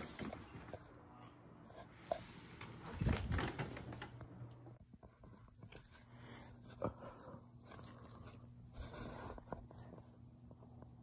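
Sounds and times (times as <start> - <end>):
faint low hum: 0.0 - 11.0.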